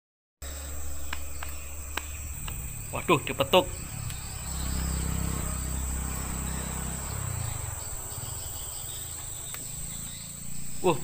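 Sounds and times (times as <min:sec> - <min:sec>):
insects droning: 0:00.4 - 0:11.0
low rumble: 0:00.4 - 0:11.0.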